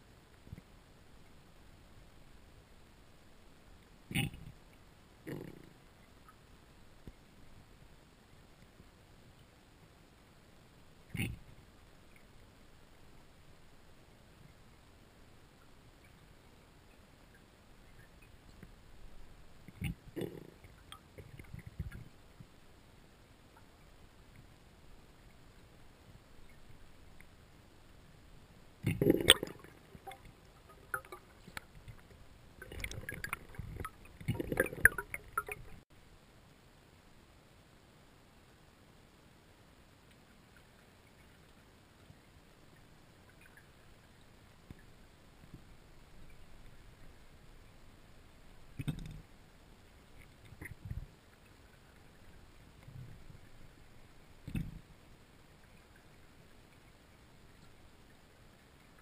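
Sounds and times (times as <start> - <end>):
faint underwater hiss: 0.0 - 59.0
water rushing underwater: 28.8 - 35.8.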